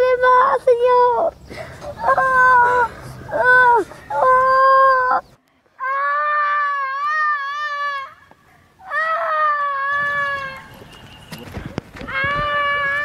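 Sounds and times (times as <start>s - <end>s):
child wailing in pain: 2.0s - 5.2s, 5.8s - 8.2s, 8.8s - 10.6s, 12.0s - 13.0s.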